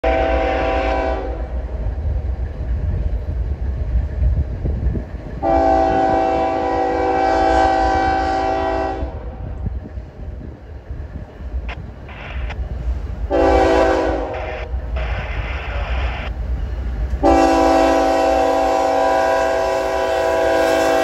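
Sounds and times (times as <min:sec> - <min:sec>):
locomotive air horn blasts: 0:00.0 - 0:01.5, 0:05.4 - 0:09.4, 0:13.3 - 0:14.7, 0:17.2 - 0:21.0
steady low rumble: 0:01.1 - 0:06.6, 0:09.0 - 0:17.4.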